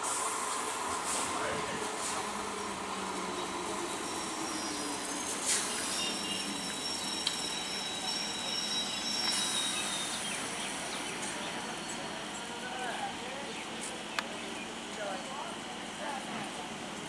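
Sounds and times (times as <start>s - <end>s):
train equipment hiss and hum: 0.0s - 17.0s
thin high whine: 3.9s - 11.0s.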